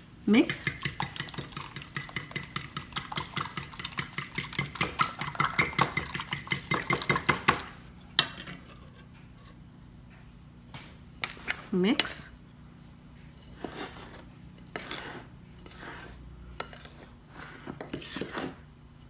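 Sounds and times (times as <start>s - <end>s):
fork beating eggs in bowl: 0.4s - 7.7s, 13.4s - 19.0s.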